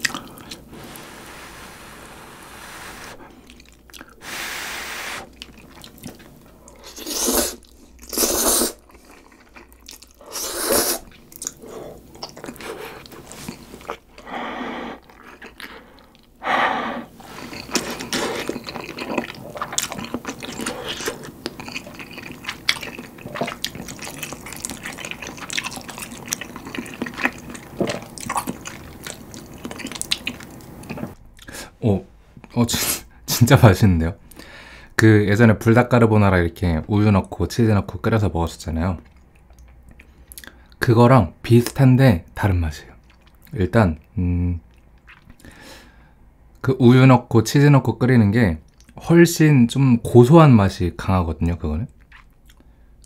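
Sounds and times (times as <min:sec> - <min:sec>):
person slurping noodles: 0:00.0 - 0:05.4, 0:06.8 - 0:08.8, 0:10.2 - 0:13.9
wet chewing smacks: 0:05.3 - 0:06.8, 0:17.4 - 0:31.5, 0:52.0 - 0:52.7.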